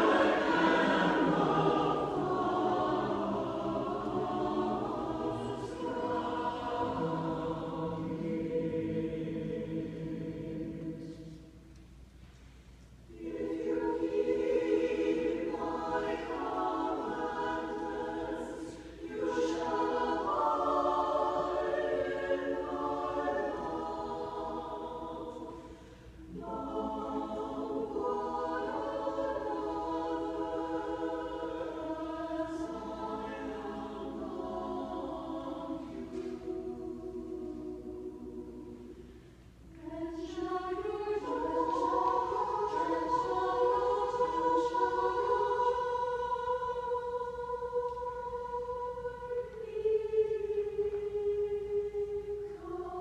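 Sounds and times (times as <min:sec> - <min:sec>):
mixed choir singing: 0:00.0 - 0:11.7, 0:13.1 - 0:53.0
singers breathing: 0:25.5 - 0:26.3.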